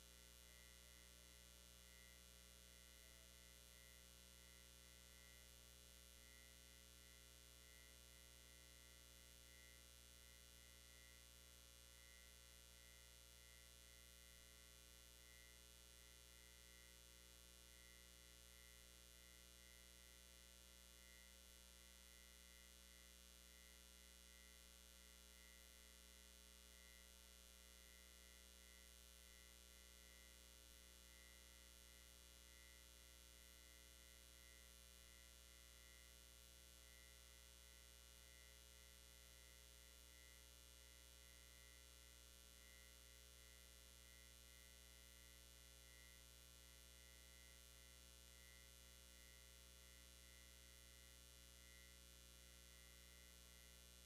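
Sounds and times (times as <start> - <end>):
faint electrical hum: 0.0 - 54.0.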